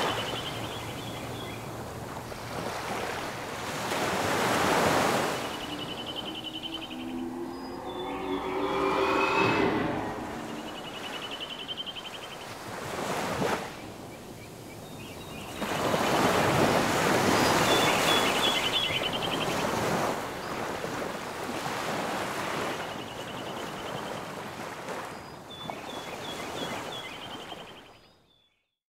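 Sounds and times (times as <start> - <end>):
ocean waves washing on shore: 0.0 - 27.7
high chirping trills: 5.0 - 12.4.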